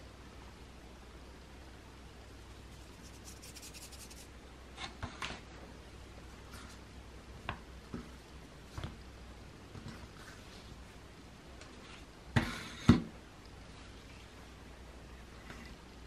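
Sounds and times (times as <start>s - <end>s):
fingers rubbing flour: 2.7s - 4.3s.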